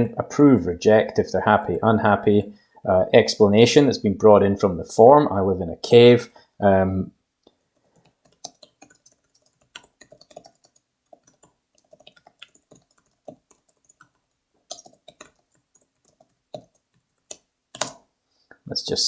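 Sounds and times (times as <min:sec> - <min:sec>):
typing on computer keyboard: 0:07.8 - 0:18.0.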